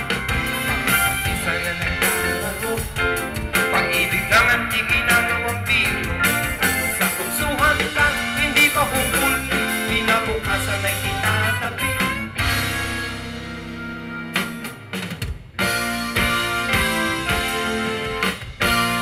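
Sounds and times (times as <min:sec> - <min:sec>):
live band music: 0:00.0 - 0:19.0
men singing into microphones: 0:01.2 - 0:11.9.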